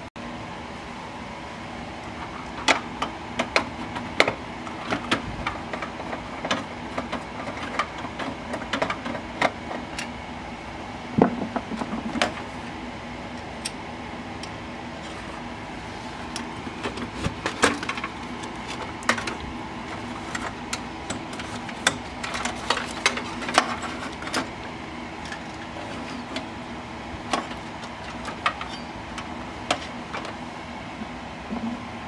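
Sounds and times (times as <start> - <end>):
clicks and rattles inside computer case: 2.2 - 10.2, 11.2 - 12.5, 16.4 - 26.5, 27.2 - 30.4.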